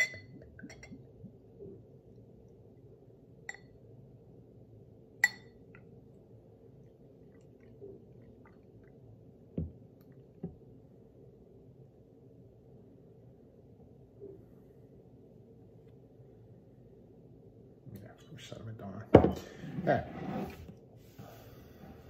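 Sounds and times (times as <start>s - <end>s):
glass clinking: 0.0s - 1.1s, 3.5s - 3.7s, 5.2s - 5.6s
faint steady hum: 0.0s - 22.0s.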